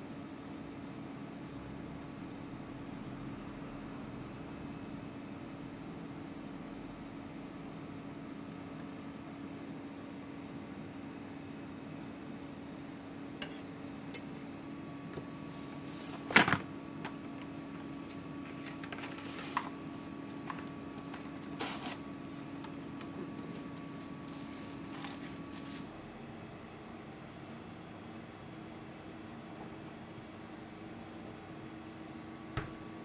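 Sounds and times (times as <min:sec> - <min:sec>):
cling film crinkling and snapping: 0:18.1 - 0:22.0.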